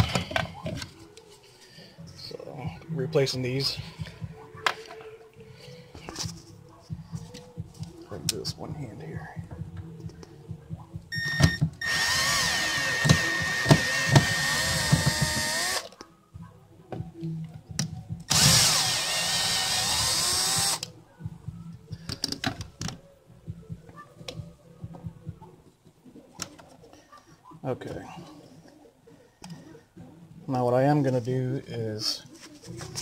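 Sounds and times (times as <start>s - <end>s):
cordless drill motor whine: 11.4s - 15.9s, 18.3s - 20.8s.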